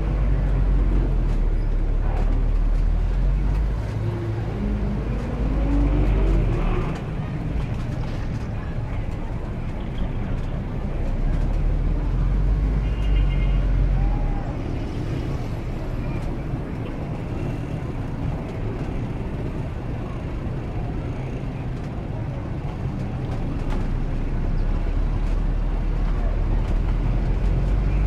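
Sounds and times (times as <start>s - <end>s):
city traffic noise: 0.0s - 28.0s.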